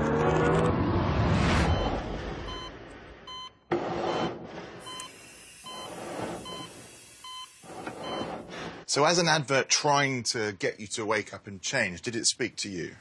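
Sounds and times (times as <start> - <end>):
short electronic beeps: 1.7 - 8.4.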